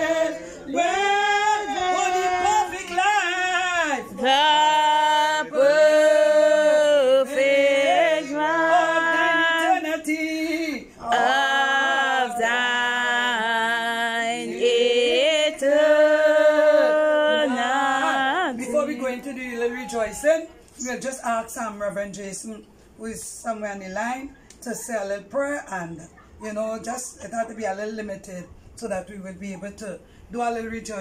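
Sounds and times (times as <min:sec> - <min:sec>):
people singing unaccompanied: 0:00.0 - 0:20.4.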